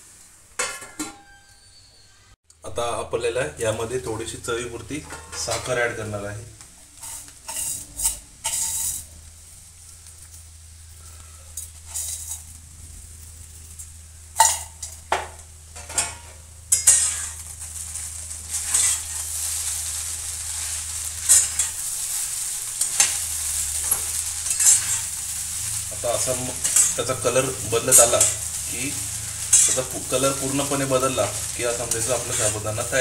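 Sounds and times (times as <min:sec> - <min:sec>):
light sizzle: 0:00.0 - 0:33.0
metal spatula scraping a pan: 0:07.0 - 0:09.1, 0:11.5 - 0:12.6, 0:15.8 - 0:33.0.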